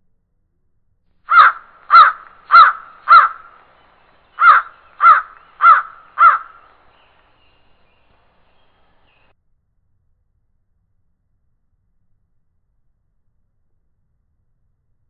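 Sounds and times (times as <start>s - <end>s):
crow cawing: 1.3s - 9.2s.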